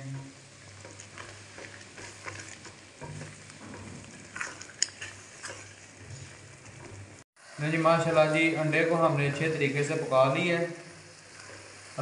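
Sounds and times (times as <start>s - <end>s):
eggs sizzling in a pan: 0.0s - 12.0s
spatula scraping a pan: 0.2s - 7.0s, 11.0s - 12.0s.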